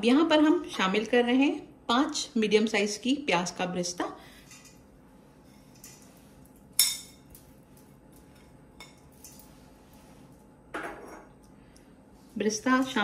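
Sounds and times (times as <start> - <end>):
soft rustle: 7.4 - 10.6.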